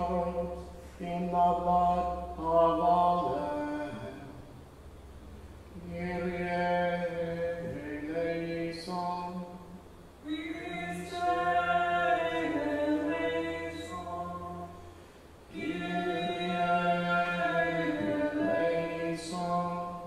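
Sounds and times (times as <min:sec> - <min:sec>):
choir chanting: 0:10.2 - 0:14.9, 0:15.5 - 0:20.0.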